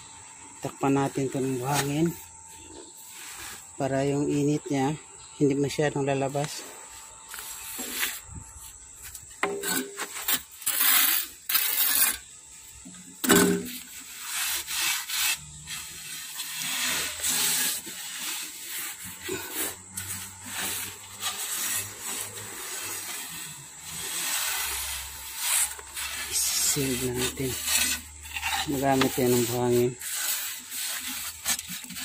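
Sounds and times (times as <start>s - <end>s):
hand scraping damp sand on steel: 0.8s - 4.6s, 6.4s - 12.3s, 13.2s - 32.0s.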